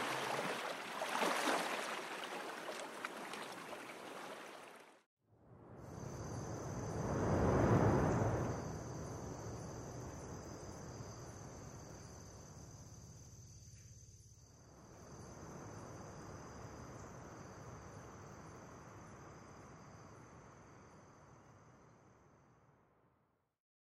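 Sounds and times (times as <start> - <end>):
insect chorus: 0.0 - 4.8, 5.6 - 22.6
soft rushing wash: 0.0 - 4.9, 6.7 - 10.4.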